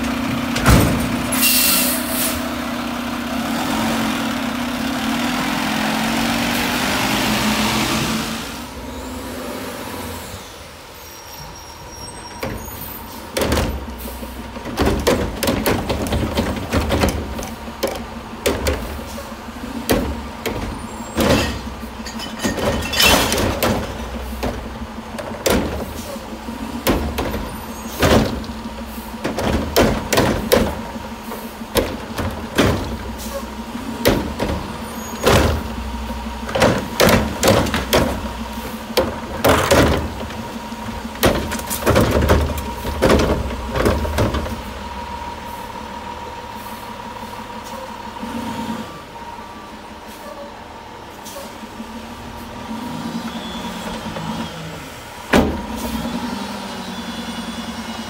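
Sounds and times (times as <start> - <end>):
plastic carts clanking and banging: 0.0 - 1.6, 12.2 - 44.8
truck engine humming: 0.0 - 58.0.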